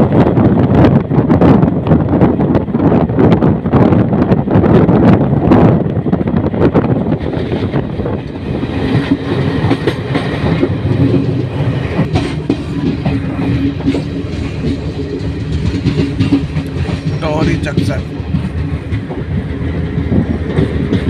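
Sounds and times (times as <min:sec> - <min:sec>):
train rumble: 0:00.0 - 0:21.0
wheels clacking over rail joints: 0:07.0 - 0:21.0.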